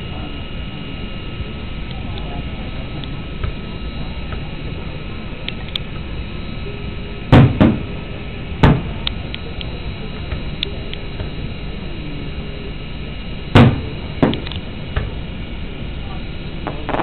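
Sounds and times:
steady background hiss: 0:00.0 - 0:17.0
fireworks booming: 0:07.3 - 0:08.0, 0:08.6 - 0:09.0, 0:13.5 - 0:15.2, 0:16.6 - 0:17.0.

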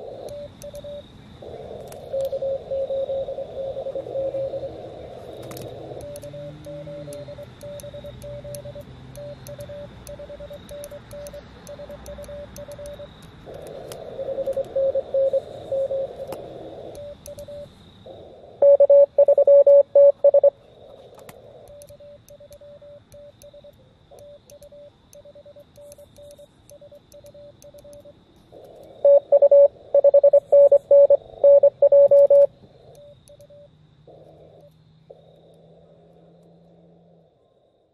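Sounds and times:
morse code tones: 0:00.0 - 0:01.1, 0:02.0 - 0:04.8, 0:05.7 - 0:17.7, 0:18.6 - 0:20.6, 0:21.7 - 0:28.1, 0:29.0 - 0:33.7
radio band hiss: 0:00.0 - 0:07.7, 0:11.4 - 0:21.7.

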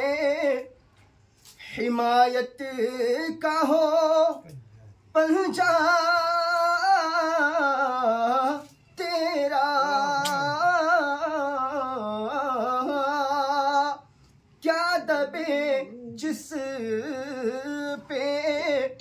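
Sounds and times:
man singing unaccompanied: 0:00.0 - 0:00.8, 0:01.7 - 0:19.0.

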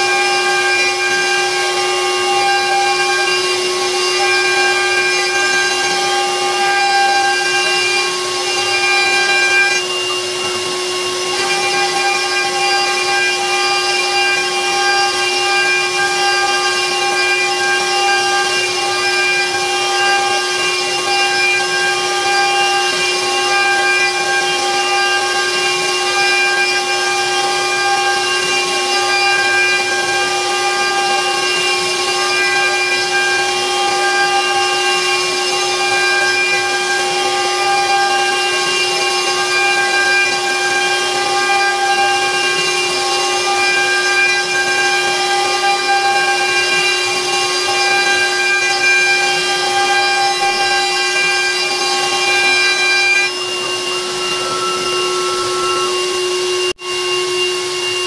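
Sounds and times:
bit milling wood: 0:00.0 - 0:58.0
router spindle whine: 0:00.0 - 0:58.0.

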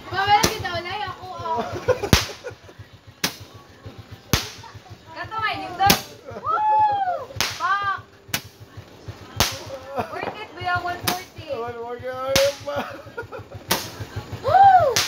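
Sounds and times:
high rising-and-falling calls: 0:00.3 - 0:08.3
fireworks bangs: 0:01.8 - 0:06.2, 0:07.2 - 0:15.0.

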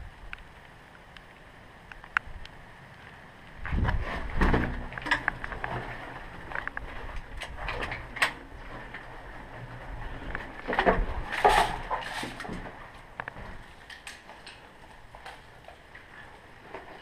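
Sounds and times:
sharp clicks and knocks: 0:03.6 - 0:09.1.

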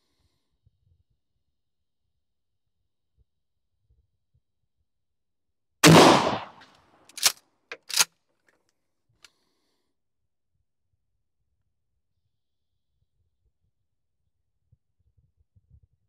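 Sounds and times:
shotgun blast: 0:05.8 - 0:07.3
pump slide racking clicks: 0:07.1 - 0:08.1.

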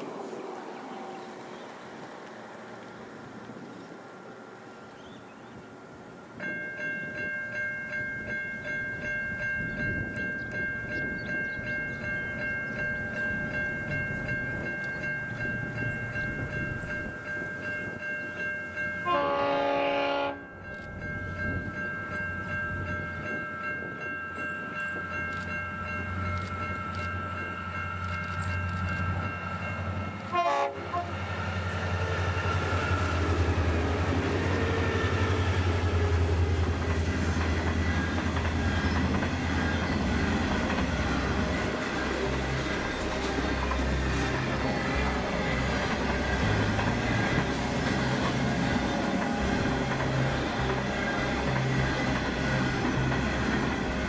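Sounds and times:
diesel locomotive engine drone: 0:00.0 - 0:54.0
level crossing bells ringing: 0:06.4 - 0:19.4
train horn blast: 0:19.0 - 0:20.5, 0:30.2 - 0:31.2.

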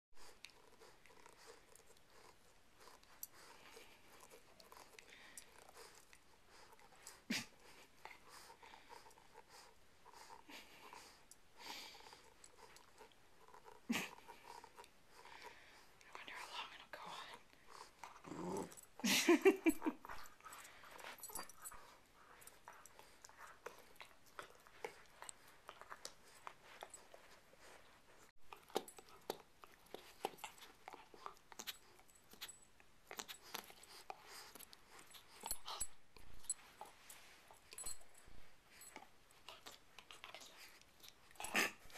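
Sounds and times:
puppy vocal sound: 0:17.9 - 0:19.9.

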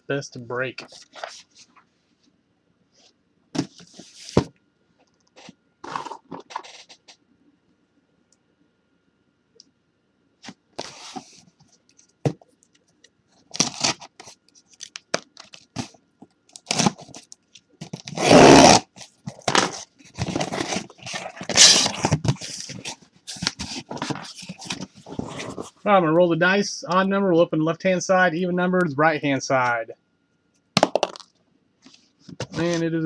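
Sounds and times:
cardboard box tearing and scraping: 0:13.6 - 0:14.1, 0:16.6 - 0:17.2, 0:17.9 - 0:25.6.

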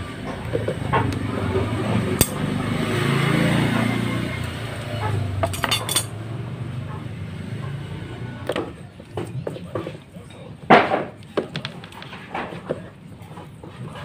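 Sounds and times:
metallic clicks and clinks: 0:05.4 - 0:06.1.

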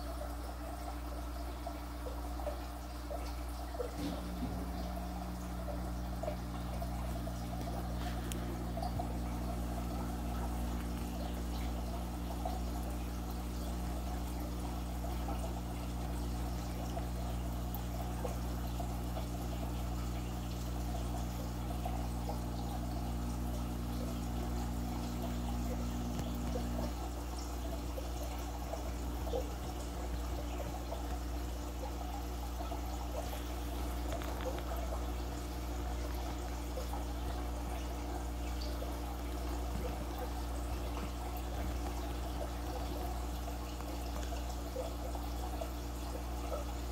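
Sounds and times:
water bubbling and trickling: 0:00.0 - 0:46.9
low hum: 0:03.8 - 0:32.1.

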